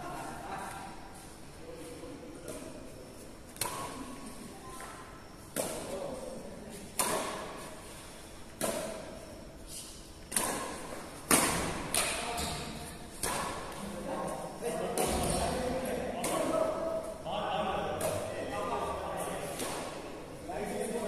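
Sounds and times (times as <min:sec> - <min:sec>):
badminton racket hitting shuttlecock: 0:07.0 - 0:07.6, 0:08.6 - 0:09.1, 0:10.3 - 0:13.8.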